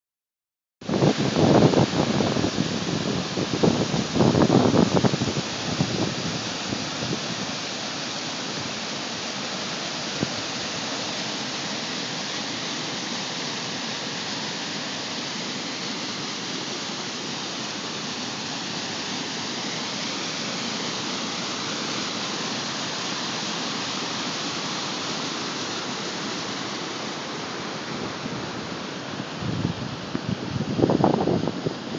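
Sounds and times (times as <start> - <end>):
wind on microphone: 0.9 - 7.4, 29.4 - 31.9
creek water rushing over rocks: 0.9 - 31.9.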